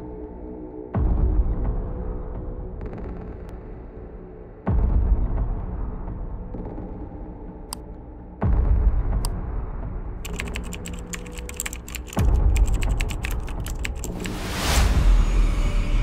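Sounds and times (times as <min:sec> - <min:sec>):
laptop keyboard typing: 0:10.2 - 0:14.4.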